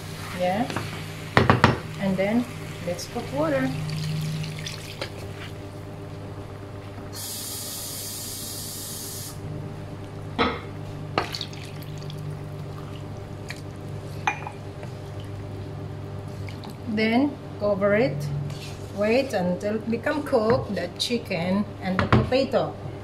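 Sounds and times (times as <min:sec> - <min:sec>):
low hum: 0:00.0 - 0:07.1, 0:09.3 - 0:20.3.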